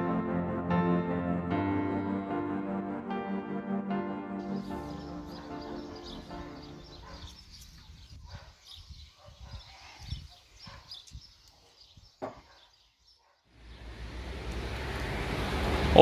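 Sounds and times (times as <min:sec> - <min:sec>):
small birds chirping: 0:04.4 - 0:14.7
wind buffeting microphone: 0:04.7 - 0:12.2.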